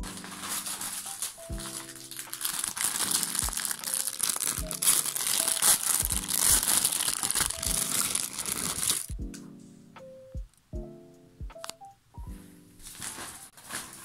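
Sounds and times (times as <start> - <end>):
plastic packaging crinkling: 0.0 - 9.1, 12.8 - 14.0
background music with steady beat: 0.0 - 14.0.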